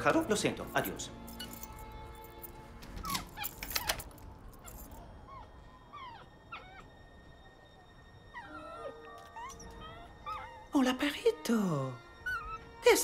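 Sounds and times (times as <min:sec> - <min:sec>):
small dog whimpering: 0:05.2 - 0:07.0, 0:08.3 - 0:10.8, 0:12.2 - 0:12.7.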